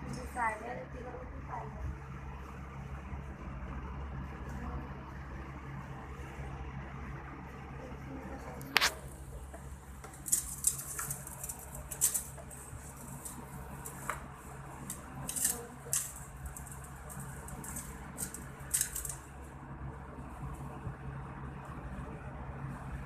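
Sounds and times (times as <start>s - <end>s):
steady low hum: 0.0s - 23.0s
rabbits nibbling leaves: 8.2s - 20.8s.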